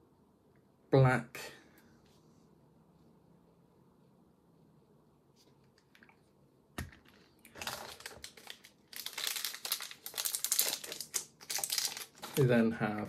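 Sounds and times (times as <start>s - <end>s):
plastic packaging crinkling: 6.8s - 13.0s.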